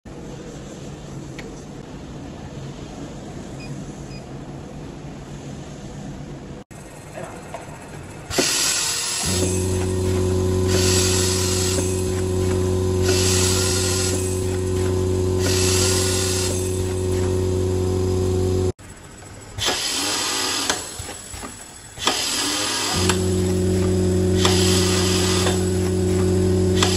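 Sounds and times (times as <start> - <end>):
machine motor hum: 6.8 - 26.9
hissing whir bursts: 8.3 - 26.9.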